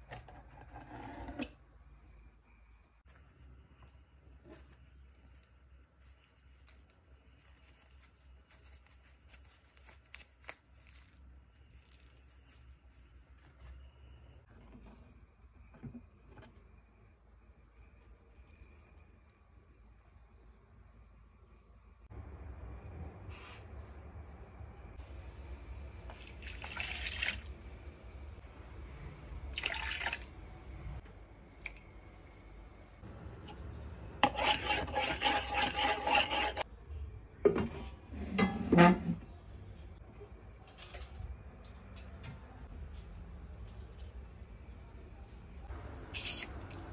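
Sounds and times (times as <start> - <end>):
water pouring into plastic bowl: 26.1 - 28.0, 29.5 - 30.3.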